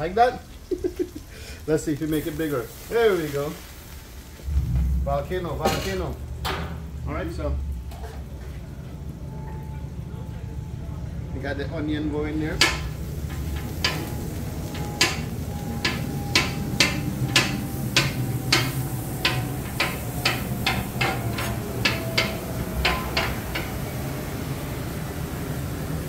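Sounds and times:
steady low hum: 4.4 - 26.0
metal spatula clacking on griddle: 12.6 - 23.8.

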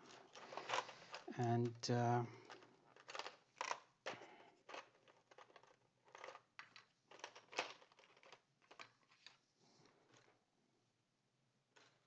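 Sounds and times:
plastic keycaps clicking and rustling: 2.4 - 9.3.

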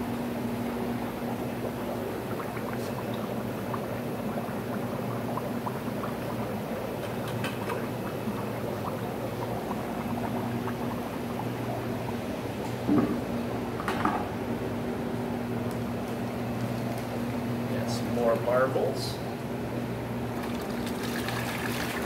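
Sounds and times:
aquarium water bubbling: 0.0 - 22.0
low electrical hum: 0.0 - 22.0
water splashing into tank: 1.2 - 12.1, 20.4 - 22.0.

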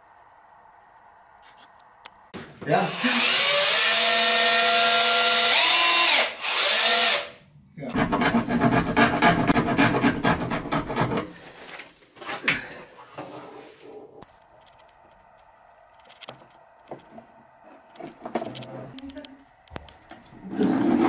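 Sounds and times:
cordless drill whining: 3.0 - 7.3.

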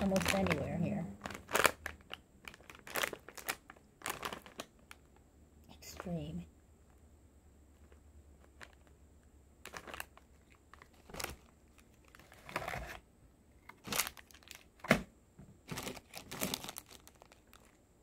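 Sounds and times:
plastic snack bag crinkling: 0.0 - 5.2, 7.8 - 9.0, 9.6 - 13.0, 13.6 - 15.0, 15.6 - 17.9.

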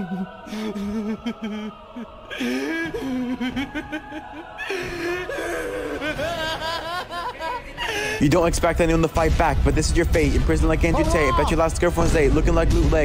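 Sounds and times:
man laughing maniacally: 0.0 - 8.3
background music: 0.0 - 13.0.

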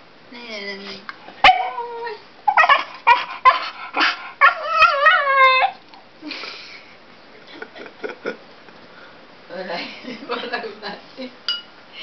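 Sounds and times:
dog yelping barks: 1.4 - 5.8
dog howl-like whine: 4.4 - 5.8.

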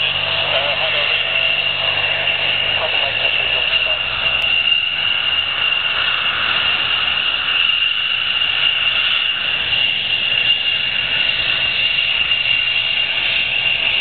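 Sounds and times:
jet engine whining: 0.0 - 14.0.

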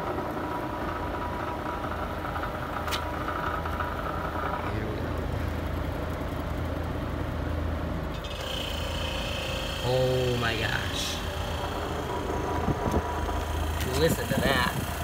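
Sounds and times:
air conditioner motor hum: 0.0 - 15.0
thin whine: 8.1 - 15.0.

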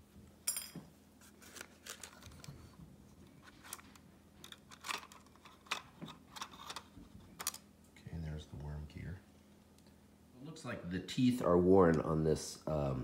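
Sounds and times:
plastic housing clicks and rustles: 3.4 - 7.7.

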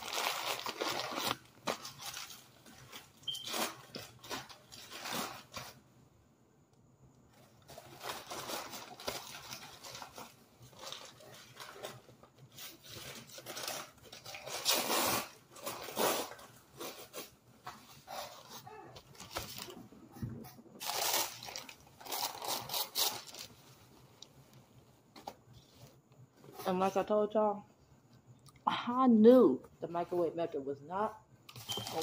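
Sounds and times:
bag rustling and crinkling: 0.0 - 5.8, 7.3 - 24.2, 31.5 - 32.0.

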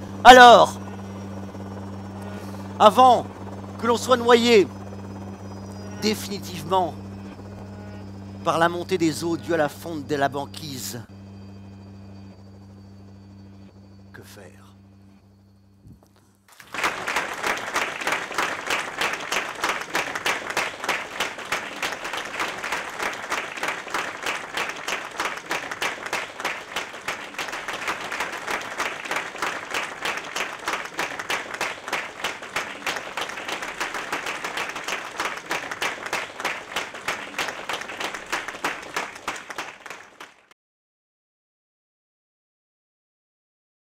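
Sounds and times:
audience applauding: 0.0 - 4.7, 5.6 - 6.9, 16.5 - 40.5.

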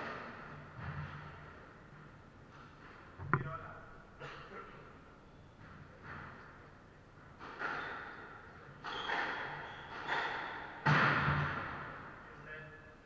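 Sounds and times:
squash ball hits echoing: 3.2 - 4.0, 7.4 - 12.0.

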